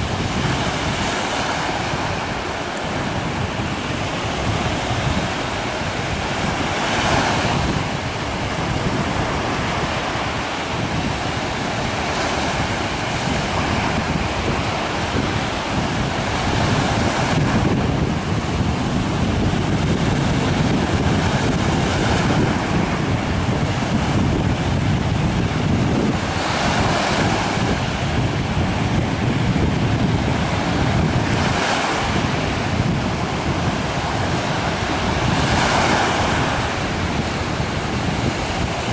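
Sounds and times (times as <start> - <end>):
small waves breaking: 0.0 - 38.9
wind rumbling on microphone: 0.0 - 38.9.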